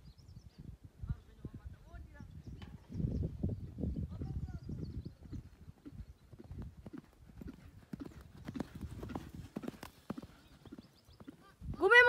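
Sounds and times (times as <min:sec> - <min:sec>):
horse hoofbeats on dirt: 0:05.0 - 0:12.0.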